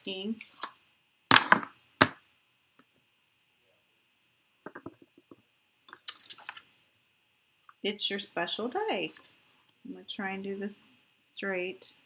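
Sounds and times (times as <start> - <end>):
stamp tapping on ink pad: 4.7 - 5.1.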